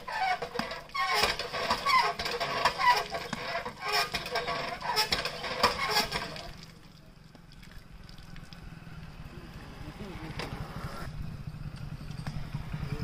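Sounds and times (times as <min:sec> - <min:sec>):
hand pump squealing and clanking: 0:00.0 - 0:06.6.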